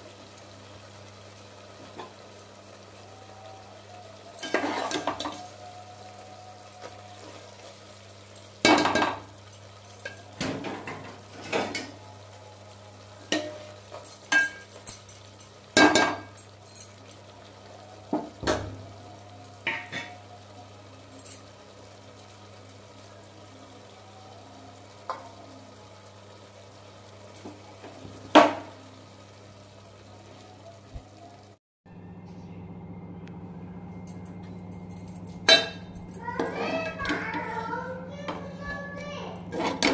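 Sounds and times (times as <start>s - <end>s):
curry sizzling: 0.0s - 31.6s, 32.6s - 39.9s
metal ladle scraping a pot: 4.4s - 5.4s, 39.5s - 39.9s.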